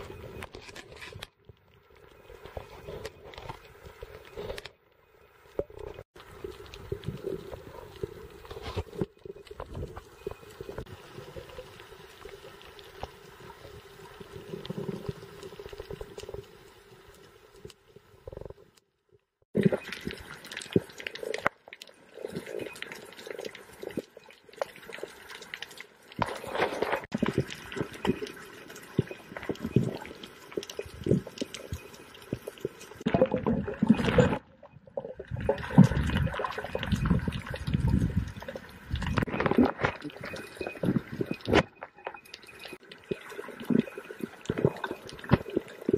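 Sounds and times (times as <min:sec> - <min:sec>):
water sloshing and gurgling: 0:00.0 - 0:18.7, 0:19.5 - 0:45.9
small underwater clicks and crackles: 0:00.0 - 0:45.9
muffled underwater water wash: 0:26.2 - 0:45.9.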